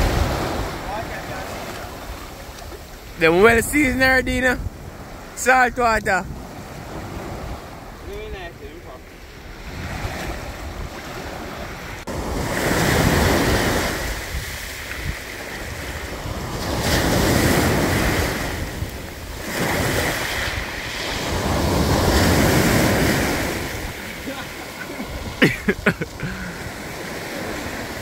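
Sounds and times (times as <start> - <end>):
wind buffeting microphone: 0.0 - 5.3
sea waves breaking on shore: 0.0 - 28.0.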